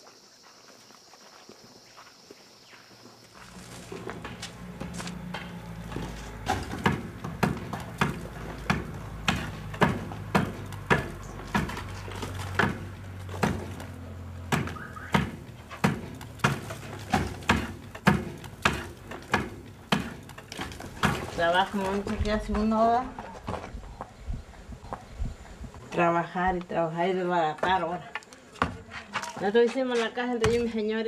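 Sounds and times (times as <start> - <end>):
knocks on brick wall: 6.4 - 11.9, 14.5 - 20.2.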